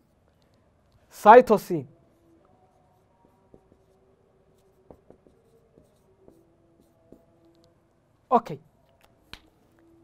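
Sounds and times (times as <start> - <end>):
marker writing on whiteboard: 2.0 - 10.0.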